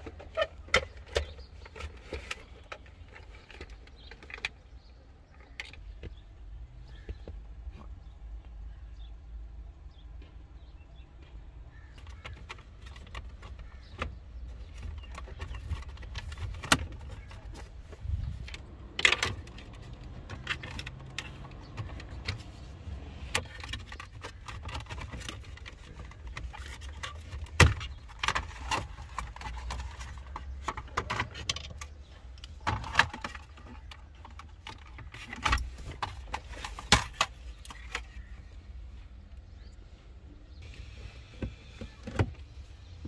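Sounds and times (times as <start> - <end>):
plastic trim clicking and rattling: 12.0 - 22.7.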